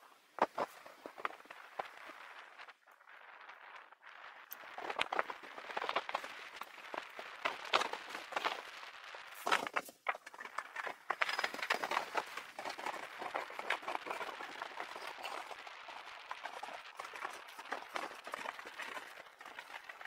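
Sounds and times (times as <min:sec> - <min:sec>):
bicycle rattling: 0:04.5 - 0:20.0.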